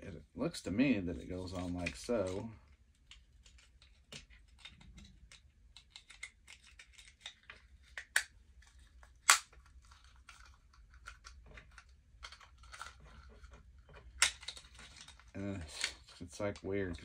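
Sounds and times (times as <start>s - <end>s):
plastic parts clicking and rattling: 1.4s - 17.0s
sharp plastic snaps: 3.0s - 13.0s.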